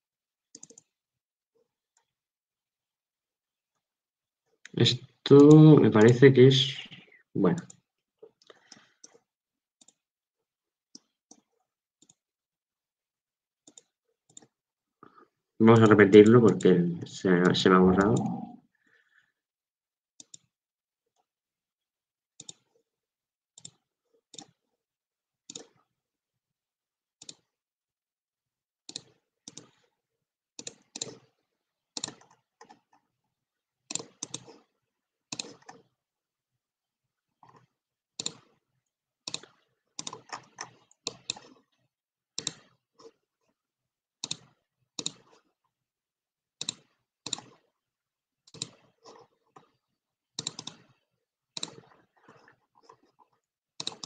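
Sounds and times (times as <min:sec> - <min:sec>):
computer mouse clicking: 0:00.5 - 0:01.0, 0:07.6 - 0:10.0, 0:10.9 - 0:12.2, 0:13.6 - 0:14.6, 0:16.2 - 0:16.7, 0:17.5 - 0:18.5, 0:20.2 - 0:20.5, 0:22.4 - 0:22.8, 0:23.6 - 0:24.7, 0:25.4 - 0:25.9, 0:27.2 - 0:27.6, 0:28.9 - 0:30.0, 0:30.6 - 0:33.1, 0:33.9 - 0:35.9, 0:37.4 - 0:38.6, 0:39.2 - 0:43.6, 0:44.2 - 0:45.6, 0:46.6 - 0:47.7, 0:48.4 - 0:49.8, 0:50.4 - 0:54.0.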